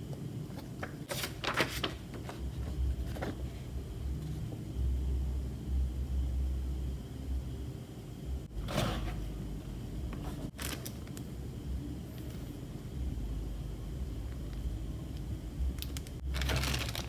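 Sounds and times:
paper rustling: 0:00.6 - 0:03.6, 0:16.3 - 0:17.0.

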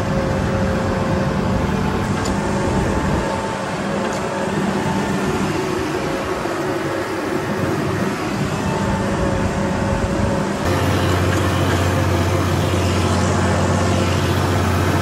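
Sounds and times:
tractor engine droning: 0:00.0 - 0:15.0.

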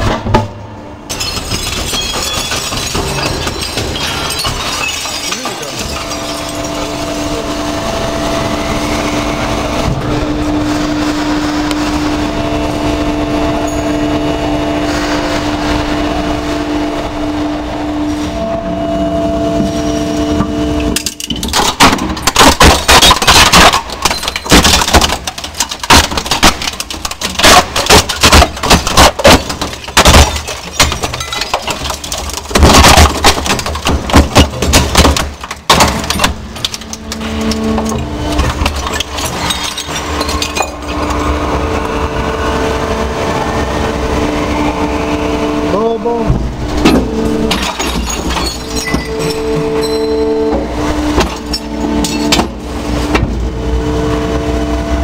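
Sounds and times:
scrap crusher humming: 0:00.0 - 0:55.0
metal and plastic cracking and crunching: 0:01.1 - 0:07.2, 0:20.4 - 0:41.8, 0:46.7 - 0:53.5.

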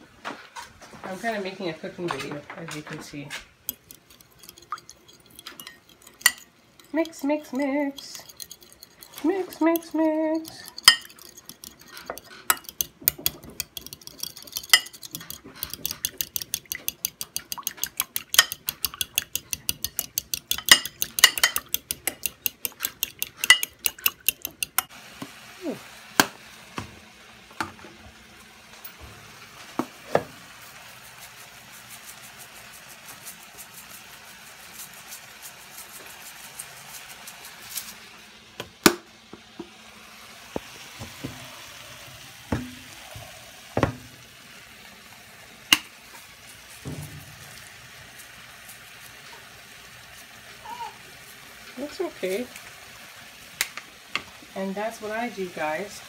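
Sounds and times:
metal spoon clinking ceramic bowl: 0:03.7 - 0:24.9
meat sizzling in a frying pan: 0:24.9 - 0:56.0.

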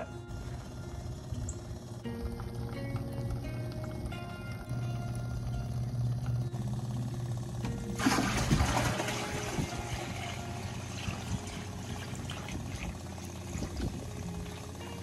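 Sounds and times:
liquid pouring into bucket: 0:07.9 - 0:14.7.

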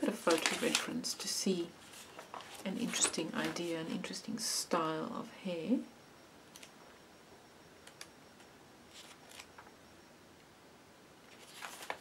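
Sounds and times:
magazine page rustling: 0:00.1 - 0:01.2, 0:01.8 - 0:04.0, 0:08.9 - 0:09.7, 0:11.3 - 0:12.0.

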